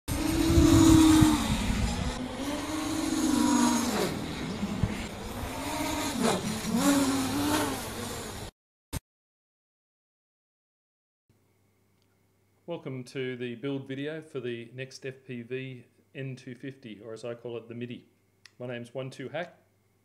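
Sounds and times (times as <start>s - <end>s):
high-revving motors whining: 0.1s - 8.5s.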